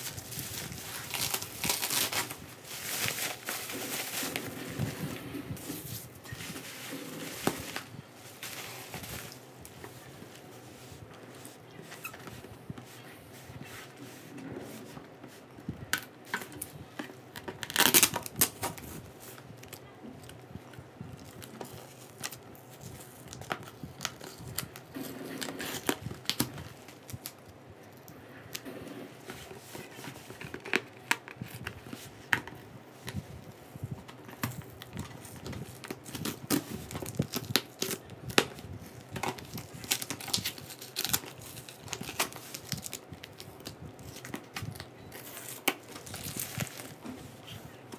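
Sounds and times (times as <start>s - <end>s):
plastic packaging crinkling: 0.0s - 10.4s, 16.0s - 20.4s, 21.2s - 28.6s, 34.2s - 47.9s
tape peeling and tearing: 0.4s - 2.4s, 17.6s - 18.6s, 39.3s - 43.0s.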